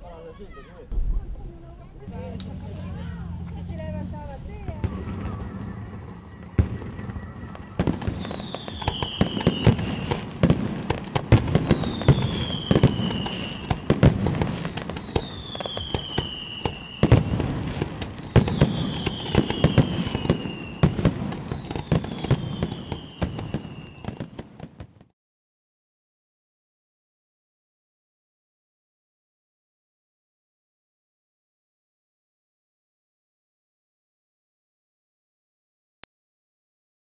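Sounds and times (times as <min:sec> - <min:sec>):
fireworks bangs and crackles: 0:00.6 - 0:25.1
falling firework whistle: 0:02.1 - 0:25.1.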